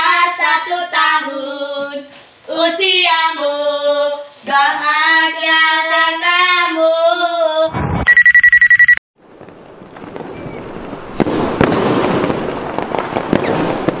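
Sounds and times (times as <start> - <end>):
group singing a birthday tune: 0.0 - 7.7
rapidly pulsing electronic beep: 7.8 - 9.0
fireworks bangs and popping: 9.2 - 14.0
fireworks crackling: 9.2 - 14.0.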